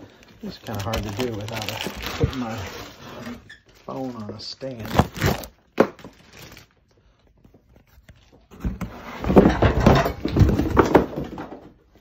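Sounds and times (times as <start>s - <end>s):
cardboard scraping and rustling: 0.5s - 3.7s, 7.8s - 11.4s.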